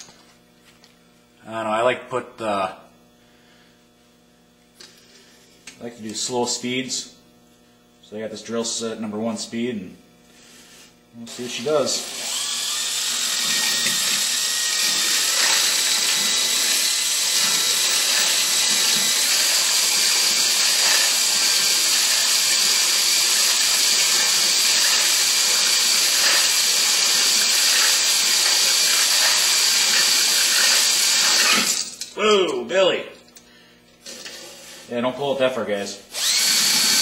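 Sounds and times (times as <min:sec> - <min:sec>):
drill honing with grinding whine: 0:11.2 - 0:31.9, 0:36.1 - 0:37.0.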